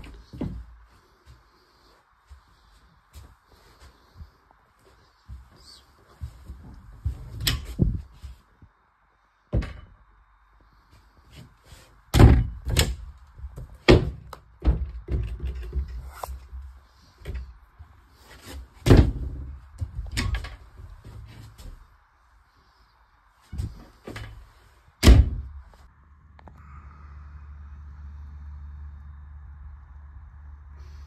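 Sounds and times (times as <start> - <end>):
hollow thuds and knocks: 9.5 - 10.0, 12.1 - 16.1, 18.4 - 21.8, 23.5 - 25.7.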